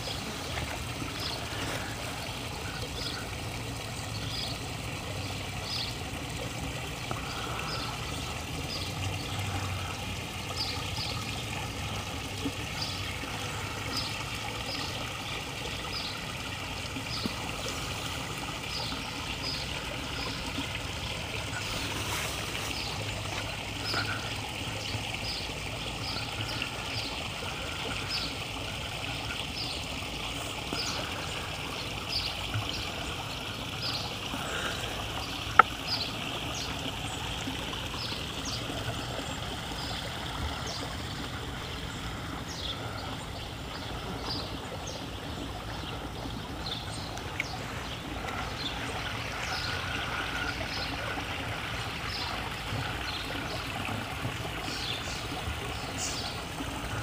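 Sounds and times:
water trickling over rocks: 0.0s - 57.0s.

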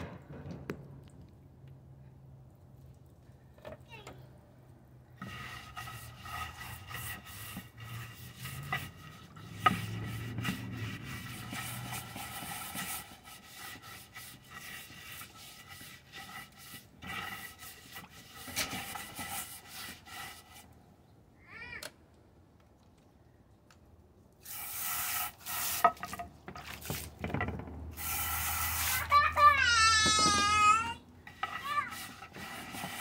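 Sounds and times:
scrub brush scrubbing plastic dish: 5.2s - 20.7s, 24.5s - 27.2s, 28.0s - 33.0s
hose nozzle spraying water: 24.4s - 27.1s, 27.9s - 29.8s, 31.3s - 33.0s.

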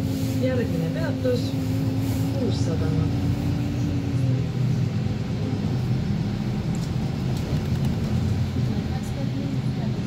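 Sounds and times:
bus engine and road rumble: 0.0s - 10.0s.

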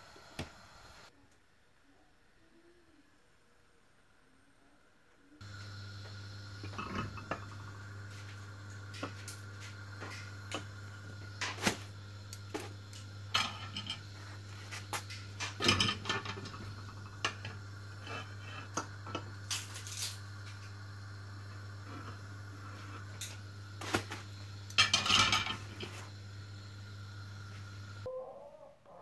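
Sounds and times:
steady low hum: 5.3s - 28.1s.

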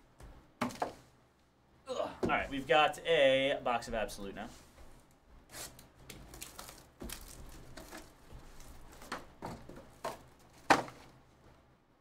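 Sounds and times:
cardboard and wrapper rustling: 5.6s - 11.2s.

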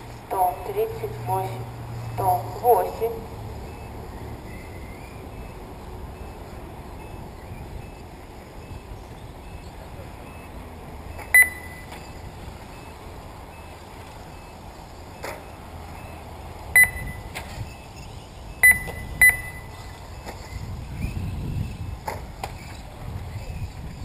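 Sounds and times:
low outdoor background noise: 0.0s - 24.0s
short electronic beeps: 10.3s - 19.8s.

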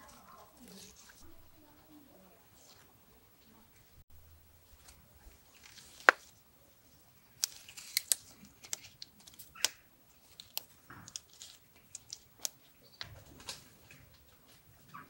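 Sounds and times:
leaves rustling: 0.0s - 15.0s
scissors snipping: 7.4s - 12.6s.

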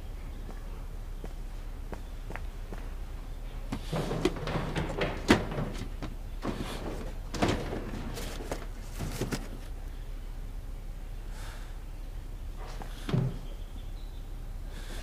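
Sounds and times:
cardboard boxes knocking and scraping: 3.7s - 9.8s.

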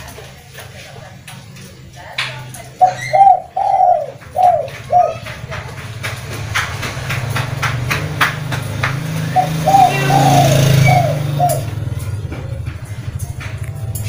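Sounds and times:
bird cooing: 2.7s - 5.7s, 9.3s - 12.0s
sharp ticks: 3.6s - 14.0s
small engine running: 4.5s - 14.0s.

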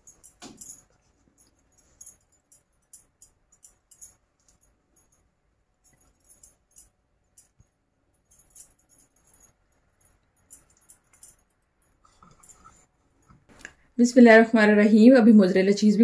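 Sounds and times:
beaded bracelet jingling: 0.0s - 7.6s, 8.2s - 12.8s.

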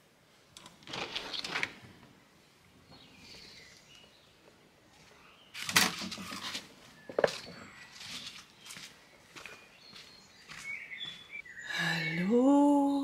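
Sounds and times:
faint bird chirps: 2.3s - 13.0s
clogs scuffing on stone tiles: 7.3s - 11.3s.

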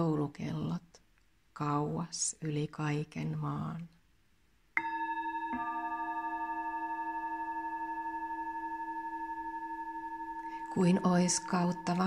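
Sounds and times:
singing bowls ringing: 4.8s - 12.0s.

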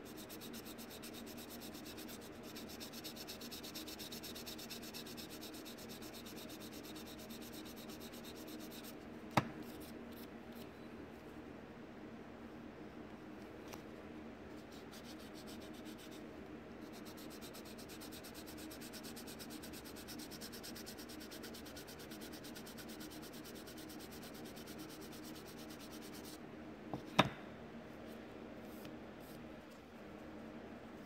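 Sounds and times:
sponge sanding plastic: 0.0s - 9.0s, 16.8s - 26.4s.

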